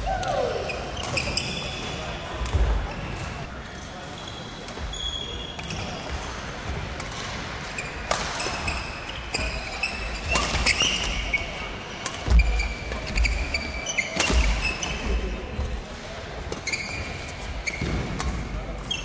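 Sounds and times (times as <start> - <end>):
sneakers squeaking on floor: 0.5 - 6.7, 7.6 - 15.6, 16.5 - 19.0
racket hitting shuttlecock: 8.1 - 8.7.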